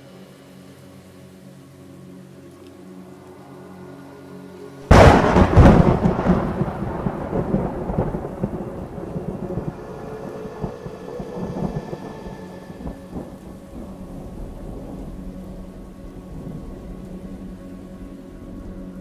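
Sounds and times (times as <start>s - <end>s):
quiet held music tones: 0.0s - 19.0s
rain hissing: 0.0s - 19.0s
loud thunderclap: 4.9s - 17.0s.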